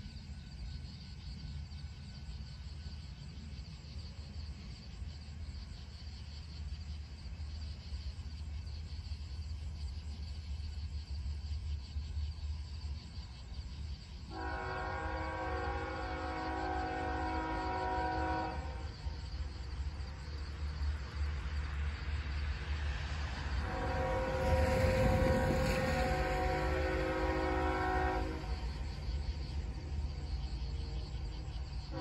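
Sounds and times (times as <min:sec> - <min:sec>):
diesel locomotive rumble: 0:00.0 - 0:32.0
train air horn chord: 0:14.3 - 0:19.0, 0:23.6 - 0:28.8.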